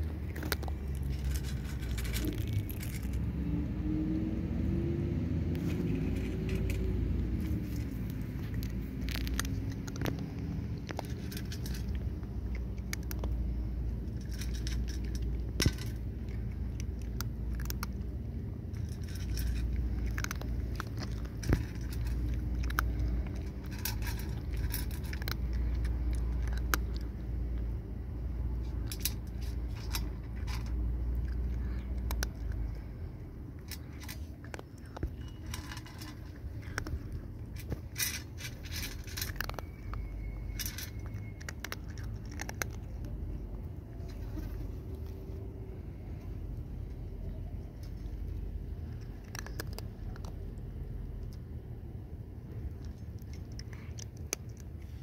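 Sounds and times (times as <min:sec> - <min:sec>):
cat crunching kibble: 0:00.0 - 0:55.0
steady low rumble: 0:00.0 - 0:55.0
kibble clinking on metal: 0:00.1 - 0:03.3, 0:06.1 - 0:27.6, 0:28.6 - 0:32.9, 0:33.6 - 0:44.6.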